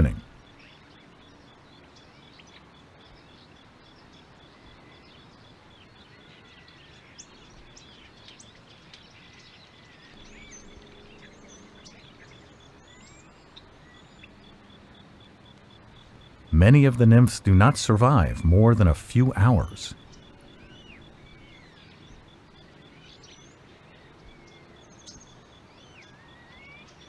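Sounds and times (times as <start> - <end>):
low hiss: 12.4 - 20.0.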